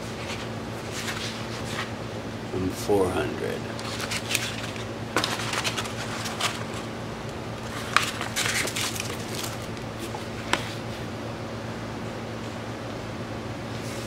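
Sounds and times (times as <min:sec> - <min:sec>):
hands rustling supplies: 0:00.0 - 0:01.9, 0:03.7 - 0:06.9, 0:07.6 - 0:10.8
steady low hum: 0:00.0 - 0:14.0.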